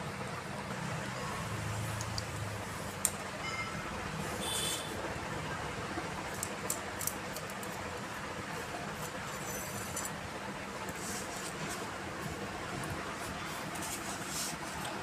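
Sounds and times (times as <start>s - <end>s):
metal scrape: 9.0s - 10.2s.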